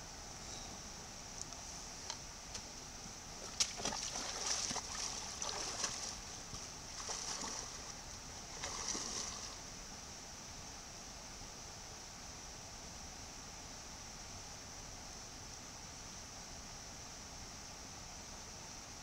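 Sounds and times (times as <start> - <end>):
stream water rushing: 3.3 - 9.8
wading steps splashing in water: 3.4 - 9.7.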